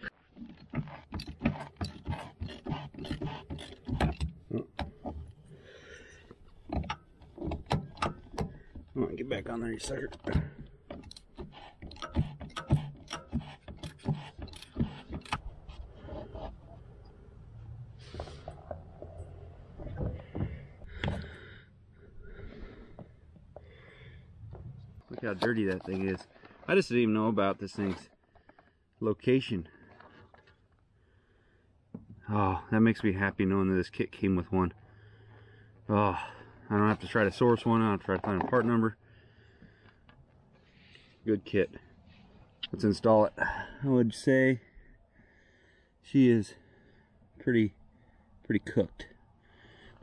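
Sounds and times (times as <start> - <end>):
filter bowl unscrewed by hand: 0.4 - 5.4, 10.2 - 16.7.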